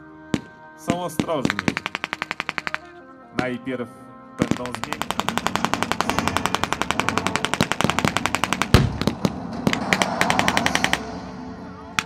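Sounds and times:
machine gun firing: 0:01.2 - 0:02.9, 0:04.4 - 0:11.1.

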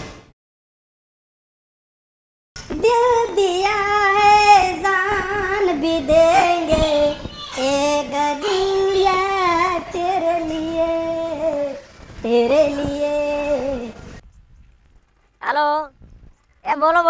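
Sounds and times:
high voice singing: 0:02.6 - 0:14.0.

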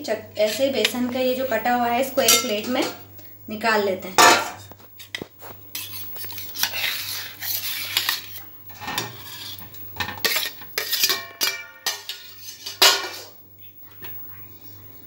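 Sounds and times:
metal spatula scraping steel plates: 0:02.2 - 0:02.8, 0:05.7 - 0:13.3.

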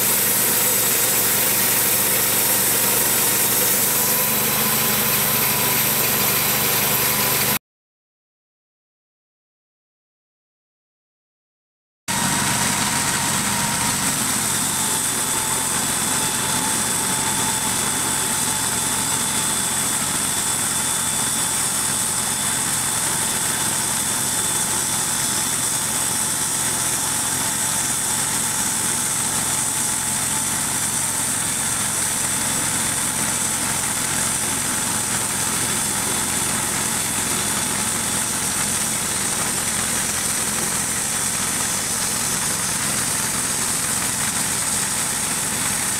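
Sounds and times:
band blade sawing log: 0:00.0 - 0:07.6
sawmill engine running: 0:00.0 - 0:07.6, 0:12.1 - 0:45.9.

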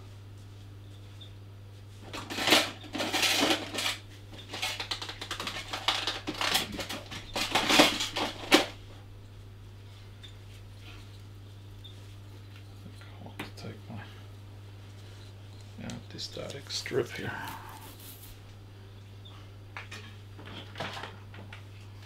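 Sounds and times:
steady low hum: 0:00.0 - 0:22.0
small hard objects clattering: 0:02.1 - 0:08.7.

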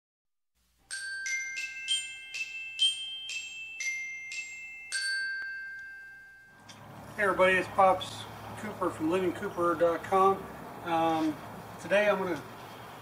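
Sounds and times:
bell-like mallet jingle: 0:00.8 - 0:06.7.

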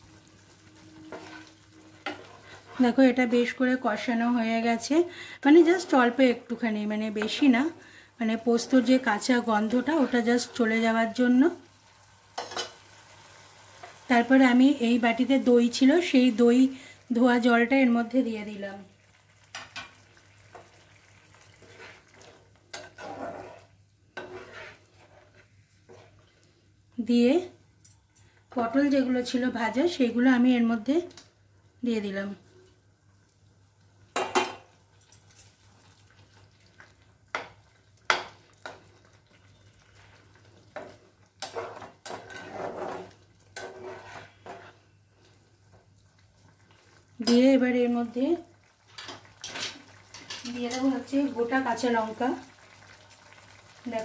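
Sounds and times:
metal spatula scraping a pan: 0:01.0 - 0:03.0, 0:21.5 - 0:26.3, 0:40.8 - 0:45.0.

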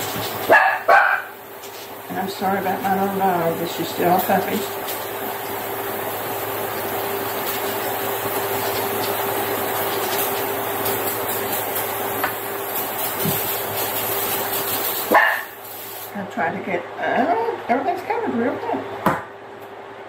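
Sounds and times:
aerosol spray hissing: 0:10.1 - 0:16.1.

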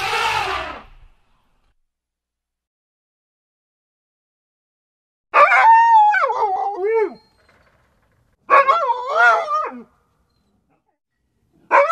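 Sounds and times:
dog howling: 0:05.4 - 0:07.2, 0:08.5 - 0:09.9.

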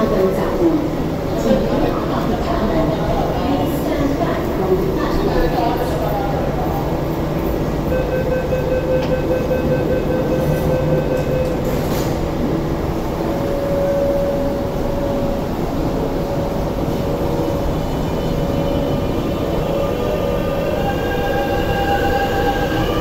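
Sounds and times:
train door beeping tones: 0:07.0 - 0:23.0
train doors clunking shut: 0:10.5 - 0:12.5.

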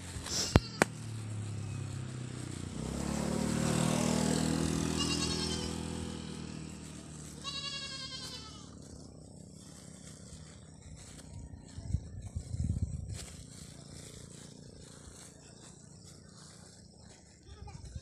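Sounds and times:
passing vehicle engine hum: 0:00.0 - 0:18.0
goat bleating: 0:00.3 - 0:00.9, 0:04.8 - 0:06.2, 0:07.1 - 0:08.9.

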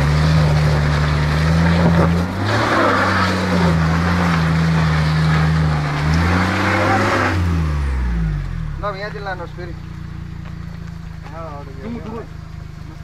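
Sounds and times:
wheels spinning in mud: 0:00.0 - 0:07.8
van engine revving: 0:00.0 - 0:13.0.

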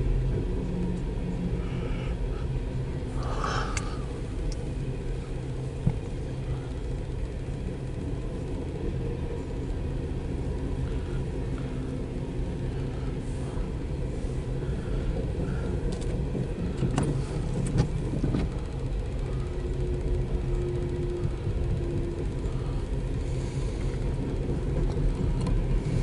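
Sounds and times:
train cars rolling rumble: 0:00.0 - 0:26.0.

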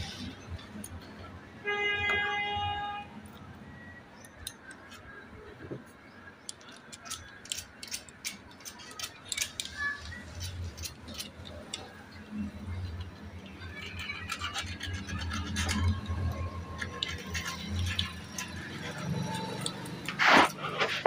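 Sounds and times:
metal parts clicking and rattling: 0:06.4 - 0:21.0.

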